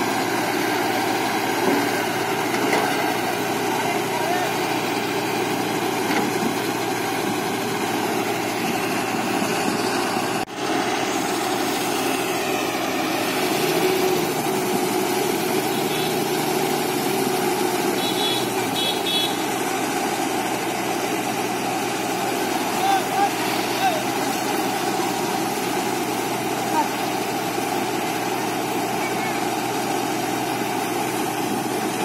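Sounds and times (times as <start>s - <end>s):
excavator diesel engine running: 0.0s - 32.0s.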